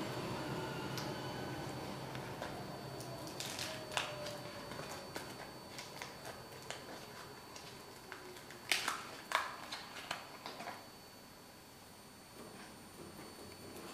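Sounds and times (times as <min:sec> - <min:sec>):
vinyl peeling crackles and snaps: 0:02.4 - 0:10.8.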